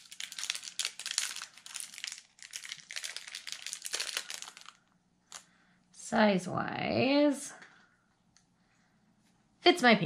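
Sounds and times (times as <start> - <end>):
plastic bag crinkling: 0.0 - 5.5.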